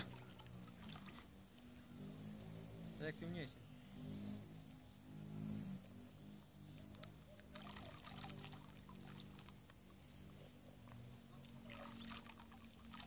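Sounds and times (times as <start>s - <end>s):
small splashes in water: 0.0s - 2.7s, 6.1s - 13.0s
faint low hum: 0.0s - 13.0s.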